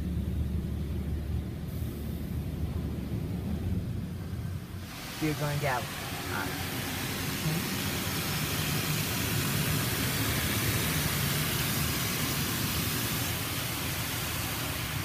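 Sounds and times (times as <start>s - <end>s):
water jets spraying on car: 3.4s - 15.0s.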